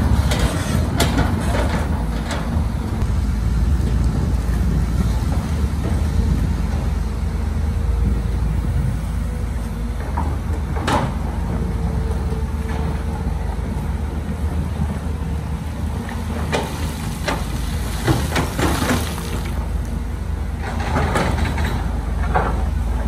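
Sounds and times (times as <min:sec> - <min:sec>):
heavy machinery diesel engine: 0:00.0 - 0:23.0.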